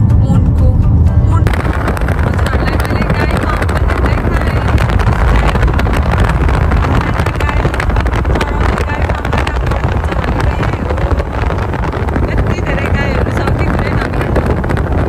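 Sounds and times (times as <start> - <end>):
wind and road noise from car: 0.0 - 15.0
wind buffeting microphone: 0.0 - 15.0.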